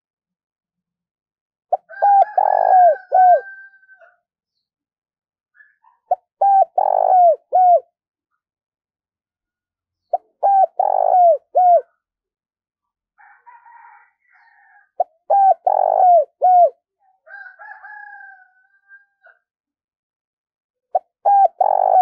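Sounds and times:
dove cooing: 1.7s - 3.7s, 5.9s - 7.9s, 10.1s - 12.0s, 15.0s - 16.8s, 20.9s - 22.0s.

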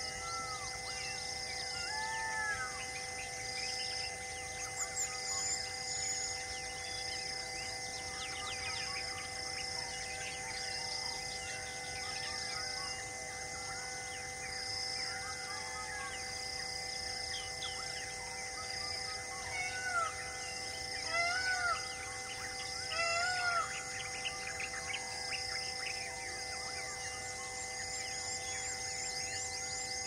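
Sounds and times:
pulsing insect drone: 0.0s - 30.0s
arched bird calls: 19.0s - 26.0s.

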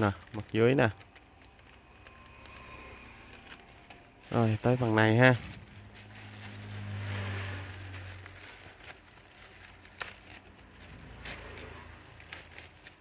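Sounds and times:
plastic bag crinkling: 0.0s - 13.0s
plastic bag tearing: 0.0s - 13.0s.

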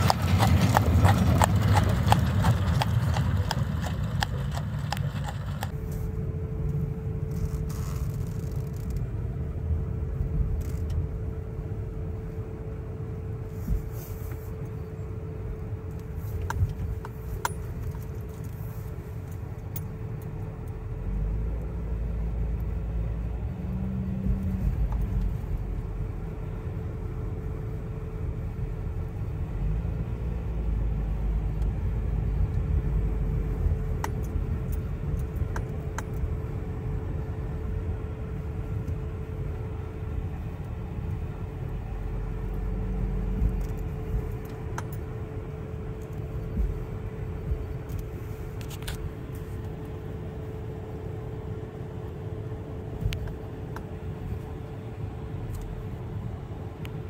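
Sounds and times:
horse hooves clip-clopping: 0.0s - 5.8s
car rumble on snowy road: 0.0s - 11.2s, 15.4s - 50.0s
constant cabin hum: 0.0s - 57.0s.

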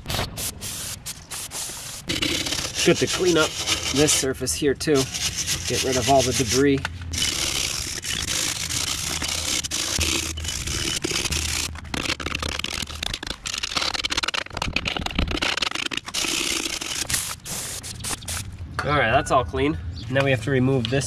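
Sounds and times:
wire brush scrubbing metal: 0.4s - 14.4s.

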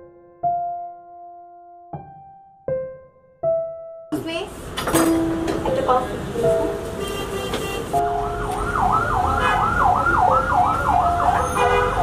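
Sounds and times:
siren yelping: 8.0s - 11.7s.

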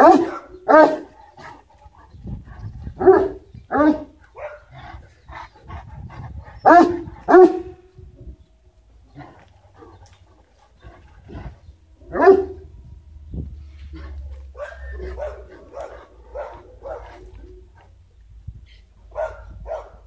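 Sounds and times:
dog barking deeply: 0.0s - 1.2s, 2.9s - 5.0s, 6.2s - 7.8s, 11.3s - 12.7s, 13.9s - 17.8s, 19.1s - 20.0s.

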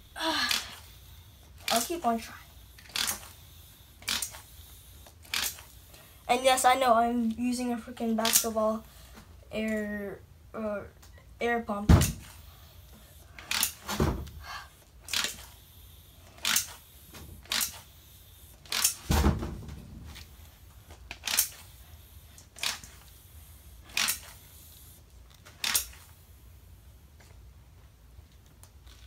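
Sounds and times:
hand air pump hissing strokes: 0.0s - 6.1s.

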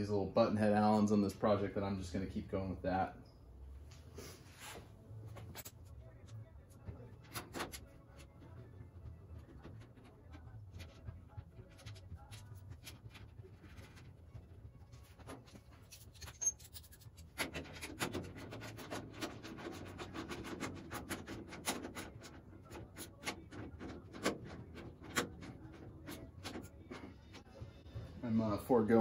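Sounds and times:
light metal clicks and scrapes: 14.9s - 27.5s.

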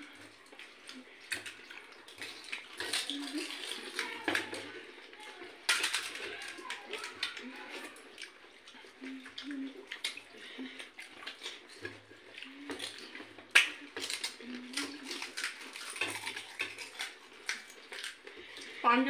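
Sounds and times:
wet dipping sounds: 0.0s - 18.8s
crisp shells cracking: 0.9s - 8.4s, 11.2s - 18.6s
crunching: 11.2s - 18.6s.

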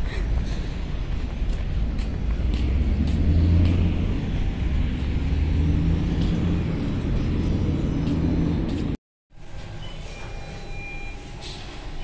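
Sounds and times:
engine humming rumble: 0.0s - 9.0s.

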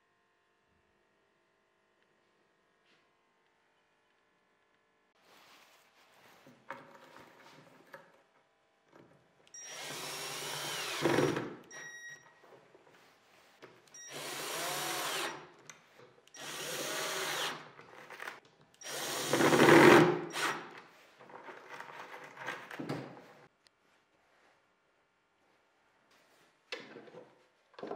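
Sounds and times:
cordless drill driving screws: 9.6s - 11.8s, 14.0s - 15.4s, 16.4s - 20.7s.

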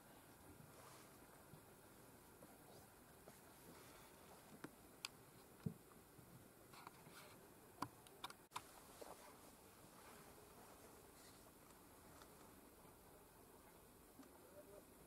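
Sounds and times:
faint sharp clicks and ticks: 14.1s - 14.4s.

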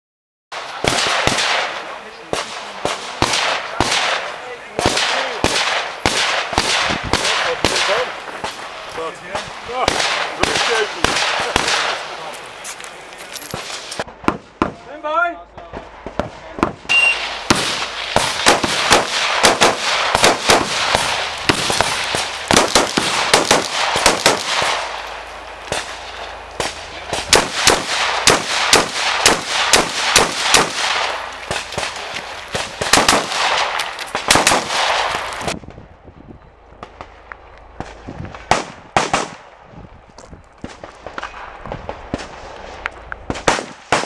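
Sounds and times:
rifle firing rapid shots: 0.6s - 8.6s, 9.7s - 12.2s, 17.2s - 35.6s, 37.8s - 39.5s, 43.3s - 44.0s
electronic timer beep: 16.9s - 17.2s.

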